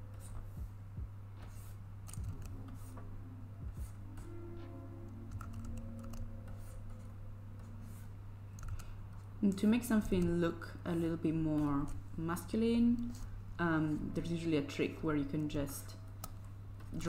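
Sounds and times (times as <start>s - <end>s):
low electrical hum: 0.0s - 17.0s
computer keyboard clicks: 2.1s - 2.6s, 5.3s - 6.3s, 8.6s - 8.9s.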